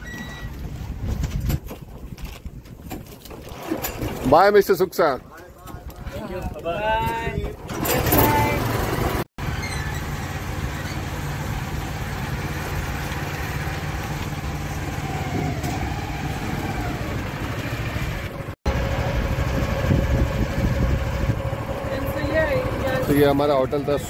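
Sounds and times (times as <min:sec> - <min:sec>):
boat engine running: 0:07.4 - 0:24.0.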